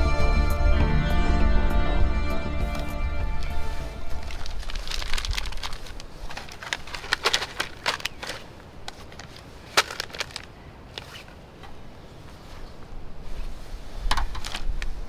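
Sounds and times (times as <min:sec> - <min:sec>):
packet crinkling and tearing: 0:03.4 - 0:11.3.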